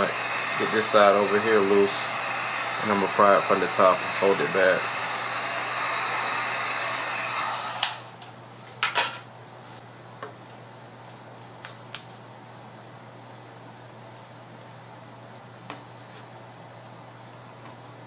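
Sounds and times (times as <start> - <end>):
heat gun blowing: 0.0 - 8.2.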